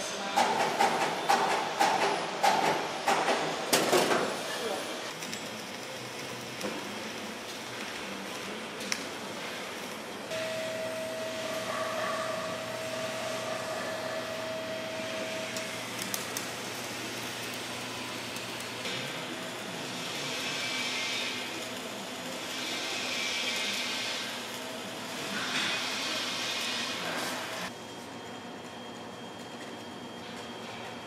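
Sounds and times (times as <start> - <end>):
arc welding hiss: 4.3 - 27.7
high whine: 10.3 - 18.5.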